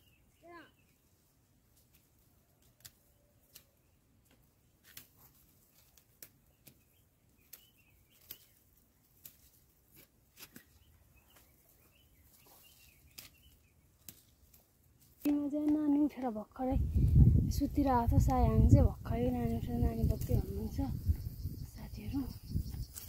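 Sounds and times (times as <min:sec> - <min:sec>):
faint bird chirps: 0:00.0 - 0:01.1, 0:06.5 - 0:08.6, 0:10.6 - 0:13.9, 0:19.6 - 0:23.0
dry stalks snapping: 0:01.8 - 0:11.5, 0:12.3 - 0:16.3, 0:22.7 - 0:23.0.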